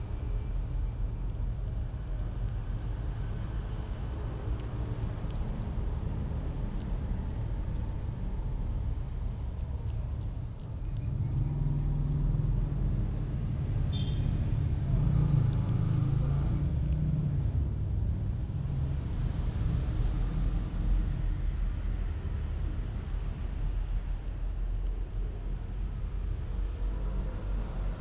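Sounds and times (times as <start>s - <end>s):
faint small clicks: 0.0s - 12.3s, 15.3s - 15.9s, 16.8s - 17.1s, 24.7s - 25.1s
vehicle engine rumble: 0.0s - 28.0s.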